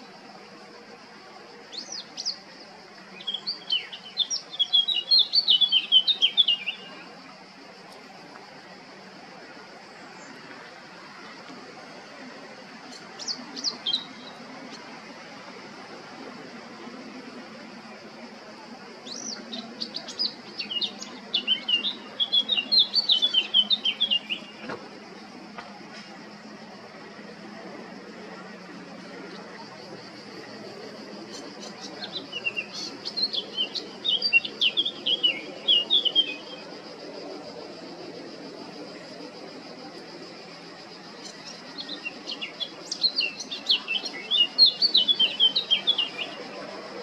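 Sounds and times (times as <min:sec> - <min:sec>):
bird singing: 0:01.6 - 0:07.3, 0:12.8 - 0:15.0, 0:19.0 - 0:25.3, 0:26.7 - 0:47.0.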